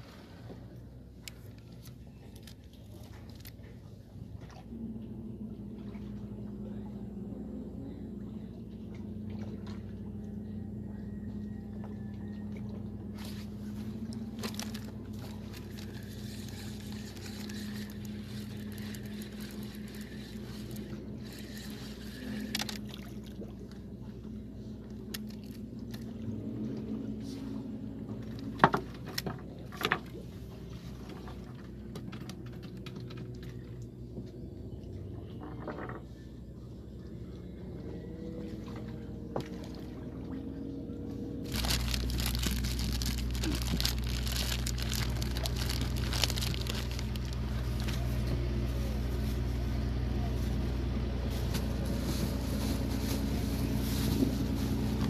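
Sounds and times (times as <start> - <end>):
motor humming: 13.3 - 26.2.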